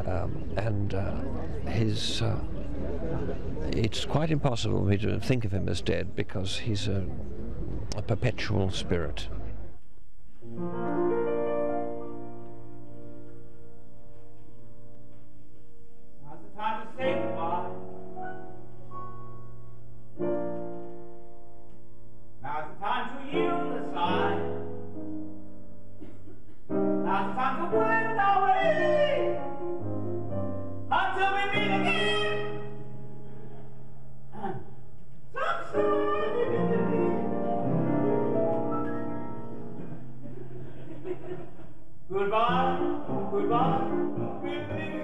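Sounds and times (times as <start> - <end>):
grand piano chords: 10.4 - 45.0
person singing with vibrato: 22.6 - 24.7, 26.9 - 29.5, 30.9 - 32.8, 34.3 - 38.0, 42.1 - 45.0.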